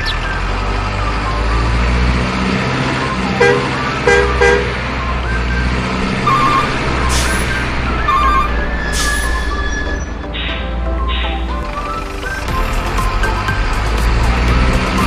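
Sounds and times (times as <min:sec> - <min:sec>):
truck engine drone: 0:00.0 - 0:15.0
truck horn toots: 0:02.9 - 0:11.3.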